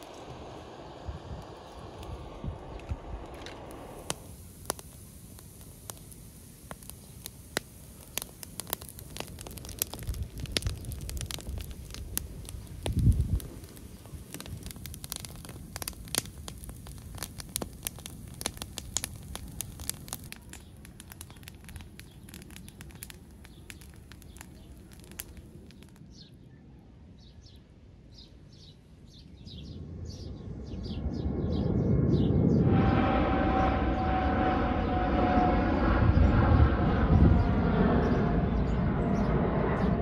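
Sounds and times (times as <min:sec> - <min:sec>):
low rumble: 0:00.0 - 0:25.7, 0:29.6 - 0:40.0
wood fire crackling and popping: 0:01.4 - 0:26.1.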